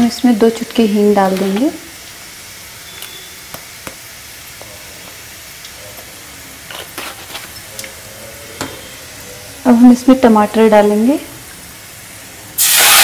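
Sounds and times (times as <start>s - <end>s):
frying in hot oil sizzle: 0.0s - 13.0s
sharp crackles: 12.6s - 13.0s.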